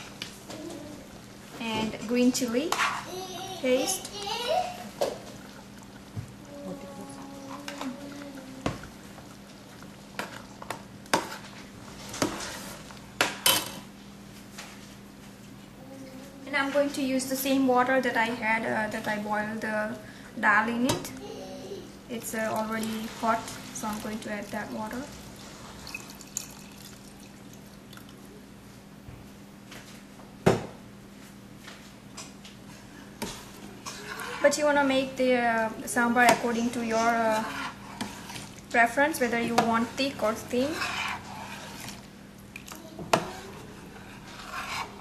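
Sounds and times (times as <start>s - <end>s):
hot water pouring and dripping: 22.2s - 28.2s
metal spoon scraping saucepan: 33.8s - 34.6s, 36.2s - 38.5s, 39.3s - 42.0s, 43.1s - 45.0s.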